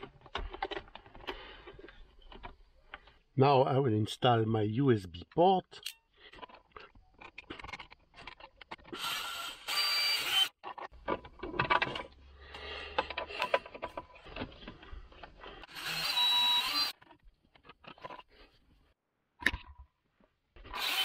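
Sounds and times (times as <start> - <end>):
small clicks and handling: 5.8 - 9.0, 12.9 - 15.6, 16.9 - 18.7
power drill whining: 8.9 - 10.6, 15.4 - 17.0, 20.6 - 21.0.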